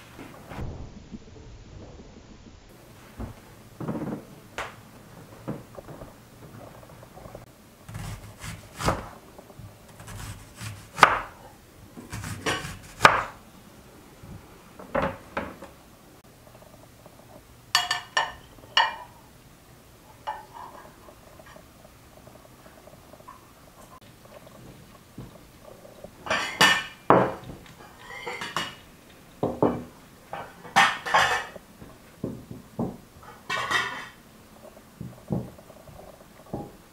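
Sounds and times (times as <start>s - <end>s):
knife slicing onion: 7.9s - 9.1s, 9.9s - 11.4s, 12.1s - 13.4s
plates clinking: 17.7s - 19.2s, 26.2s - 31.6s, 32.2s - 34.2s.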